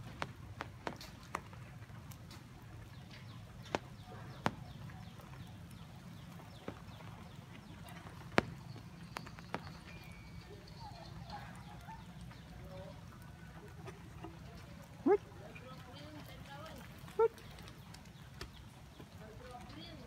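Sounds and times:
sharp taps: 0:00.0 - 0:01.6, 0:03.6 - 0:05.3, 0:08.0 - 0:10.0.

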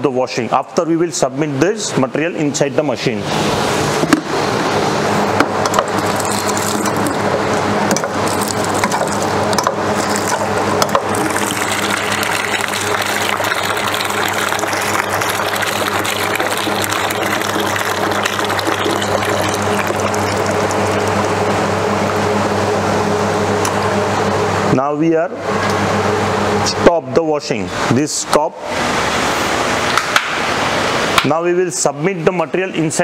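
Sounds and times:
ice cream machine humming: 0:03.1 - 0:26.9
water splashing into plastic jug: 0:05.7 - 0:07.3, 0:07.9 - 0:21.4.

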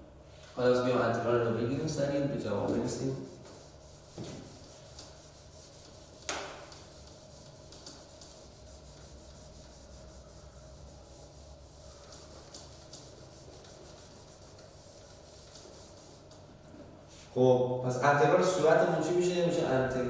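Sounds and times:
eraser rubbing a whiteboard: 0:02.6 - 0:17.3.

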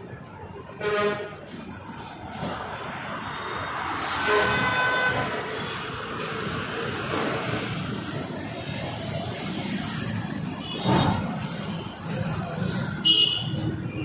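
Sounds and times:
vehicle horn: 0:00.8 - 0:01.4, 0:04.0 - 0:05.8, 0:13.0 - 0:14.0
scooters and motorcycles passing: 0:05.2 - 0:14.0.

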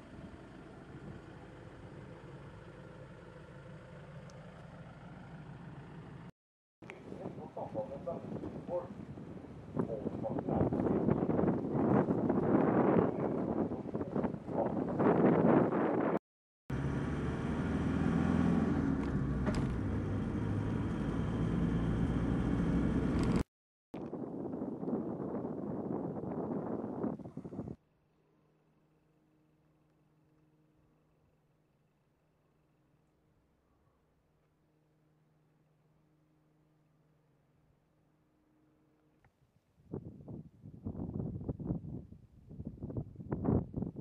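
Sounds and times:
car engine drone: 0:00.0 - 0:06.3, 0:16.7 - 0:23.5
engine idling: 0:00.0 - 0:06.3
road and tyre noise: 0:00.0 - 0:06.3, 0:06.9 - 0:24.2.

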